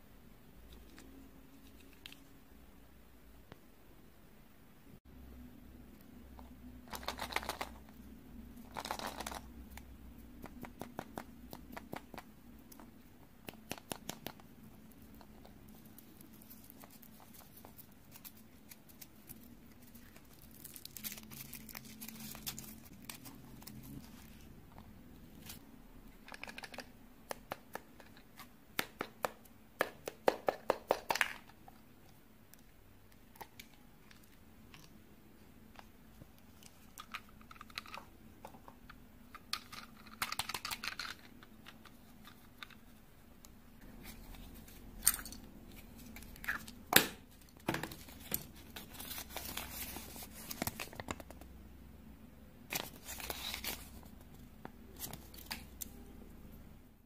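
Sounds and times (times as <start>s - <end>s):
foil wrapper crinkling: 17.8s - 24.0s.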